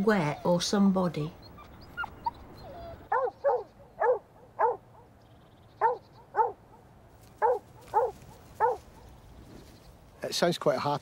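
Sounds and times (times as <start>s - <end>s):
dog barking: 3.1s - 4.8s, 5.8s - 6.6s, 7.4s - 9.0s.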